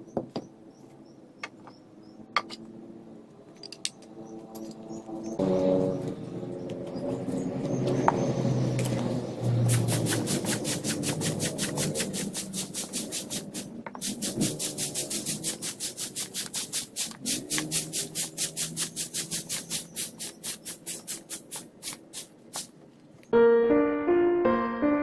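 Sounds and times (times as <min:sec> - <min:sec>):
broom sweeping: 0:09.5 - 0:22.8
piano music: 0:23.3 - 0:25.0.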